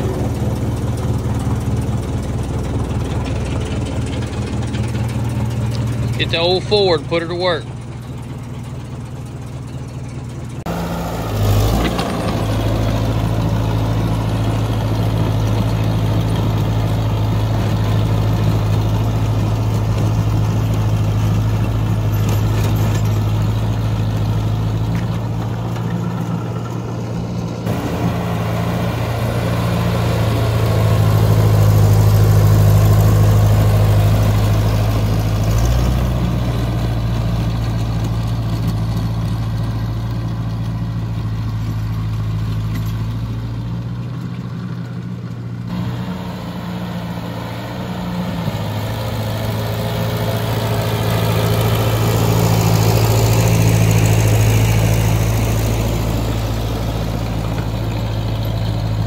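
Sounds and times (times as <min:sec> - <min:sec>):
tractor engine running under load: 0:00.0 - 0:59.0.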